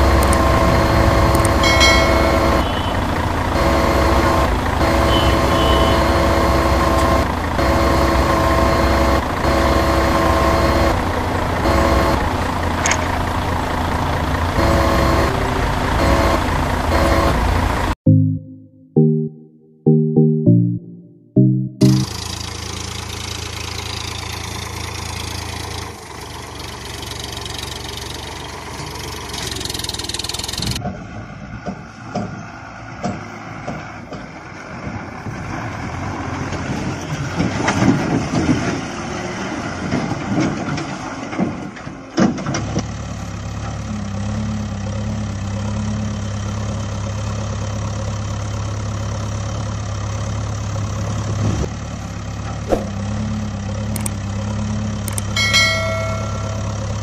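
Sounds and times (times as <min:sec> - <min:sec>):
engine idling: 0:00.0 - 0:18.0, 0:21.8 - 0:30.8, 0:42.6 - 0:57.0.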